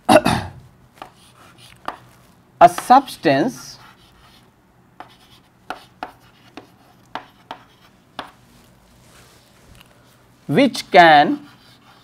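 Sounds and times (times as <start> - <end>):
chalk tapping and scraping on chalkboard: 0.9 - 9.4, 11.2 - 12.0.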